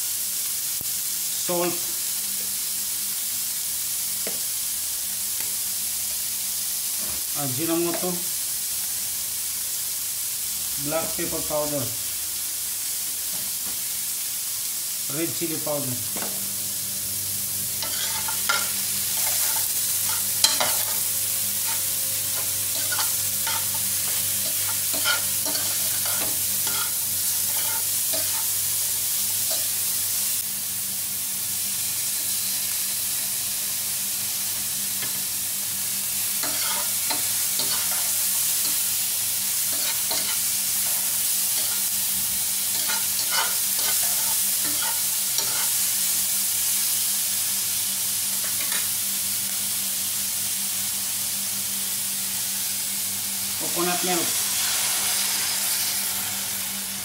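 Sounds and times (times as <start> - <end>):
food sizzling in oil: 0.0 - 57.0.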